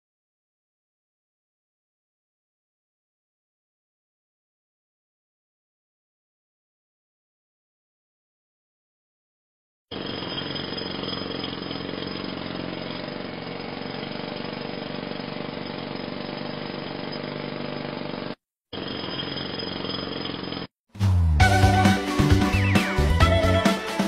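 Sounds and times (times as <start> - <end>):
upbeat music with strong beat: 21.0 - 24.0.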